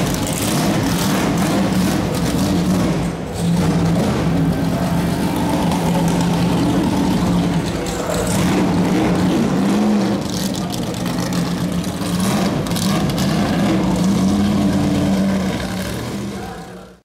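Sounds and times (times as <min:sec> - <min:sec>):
car engine running at low revs: 0:00.0 - 0:17.0.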